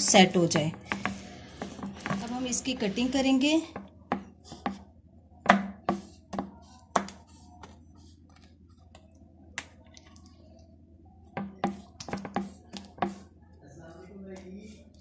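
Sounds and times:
knife knocking on a wooden board: 0:11.4 - 0:13.2.

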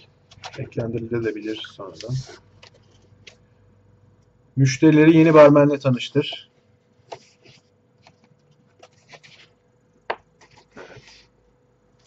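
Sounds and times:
paper rustling: 0:07.0 - 0:09.6, 0:10.3 - 0:11.4.

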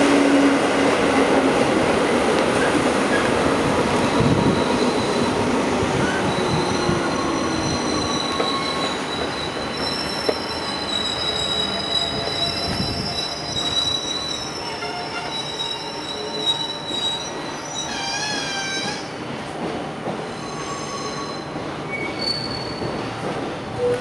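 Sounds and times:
train wheels squealing: 0:04.0 - 0:19.1, 0:20.3 - 0:23.1.

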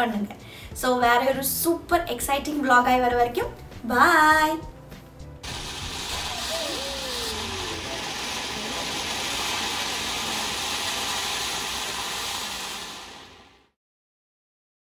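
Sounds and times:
burning firework hissing: 0:05.4 - 0:13.8.

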